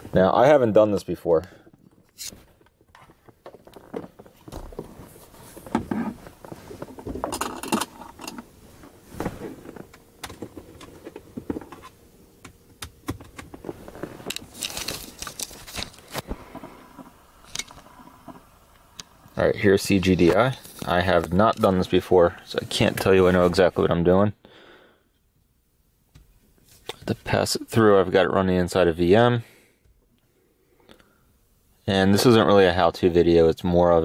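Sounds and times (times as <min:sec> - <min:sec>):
objects and cables clicking and rattling: 0:01.7 - 0:19.1.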